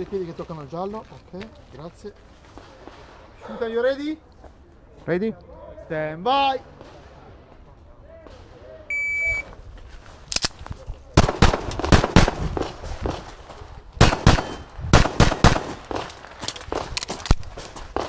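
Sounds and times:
shot timer beep: 8.9 - 9.4
pistol shots: 11.2 - 13.3, 14.0 - 18.0.

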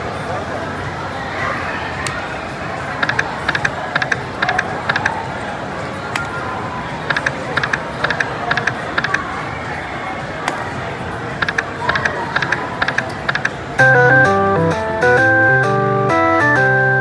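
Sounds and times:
murmur of voices: 0.0 - 17.0
slot machine music: 12.4 - 17.0.

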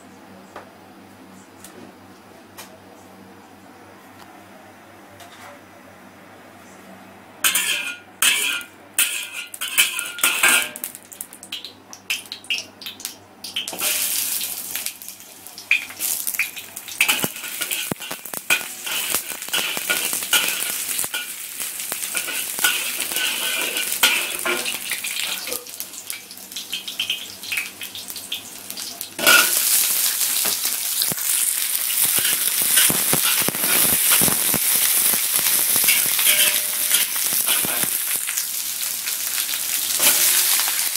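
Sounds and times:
metal spatula scraping a pan: 7.4 - 10.8, 17.0 - 21.4, 22.1 - 25.7, 35.8 - 38.1, 40.0 - 40.6
oil sizzling in a wok: 7.4 - 40.9.

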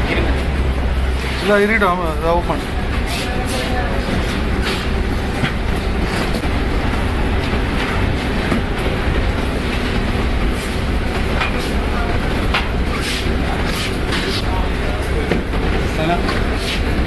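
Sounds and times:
low mechanical rumble: 0.0 - 17.0.

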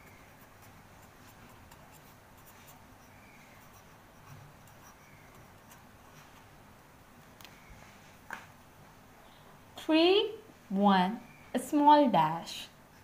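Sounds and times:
marker scratching on paper: 0.0 - 6.6.

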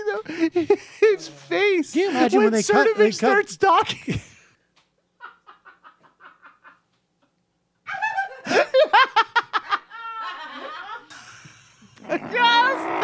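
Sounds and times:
loud laughter: 7.9 - 13.0.

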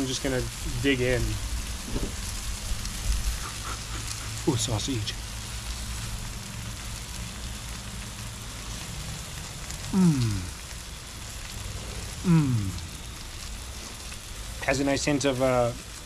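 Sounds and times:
background hiss: 0.0 - 16.0
low hum: 0.6 - 14.7
man humming mmm: 3.4 - 4.7, 9.8 - 10.6, 12.2 - 13.0.

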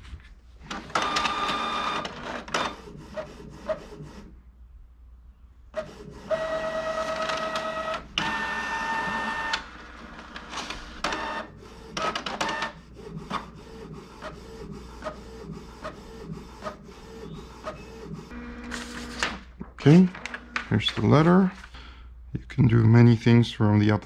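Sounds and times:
printer motors whining: 0.7 - 4.2, 5.8 - 19.4.

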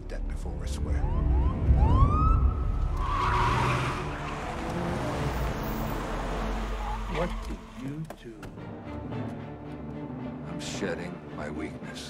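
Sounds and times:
siren whoop: 1.0 - 3.9
tyres skidding: 2.4 - 9.5.

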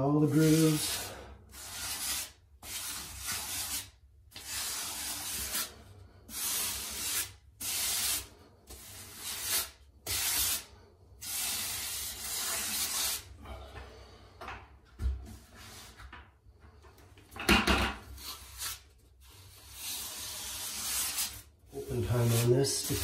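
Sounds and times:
grout float scraping tile: 0.2 - 13.3, 18.0 - 23.0.

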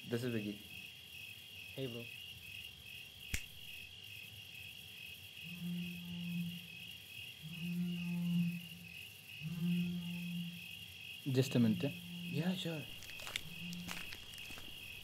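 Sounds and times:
crickets chirping: 0.0 - 15.0
sharp click: 3.3 - 3.8.

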